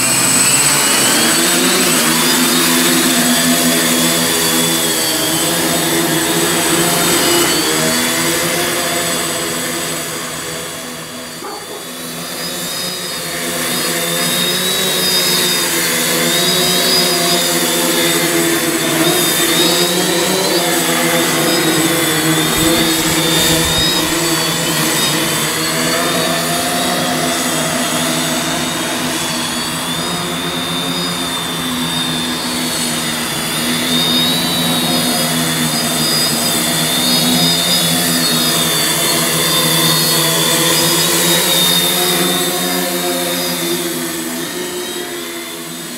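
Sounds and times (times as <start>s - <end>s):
drone motors buzzing: 9.7s - 26.6s.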